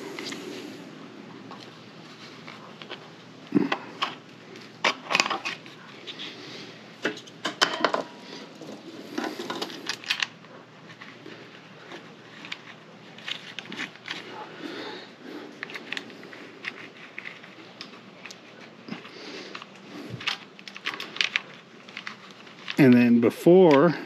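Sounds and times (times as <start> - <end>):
plastic and metal parts clicking: 9.2 - 11.1, 15.6 - 22.8.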